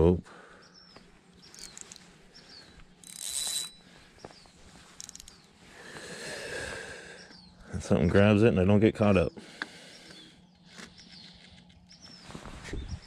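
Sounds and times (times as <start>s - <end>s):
fishing reel clicking and whirring: 1.4s - 2.0s, 2.6s - 3.9s, 4.9s - 5.5s.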